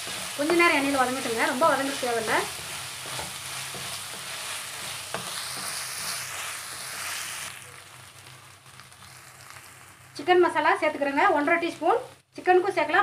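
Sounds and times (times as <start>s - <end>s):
food sizzling in hot oil: 0.0s - 13.0s.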